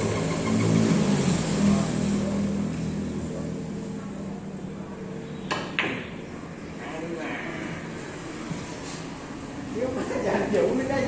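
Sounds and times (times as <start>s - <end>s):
passing vehicle engine hum: 0.0s - 5.3s.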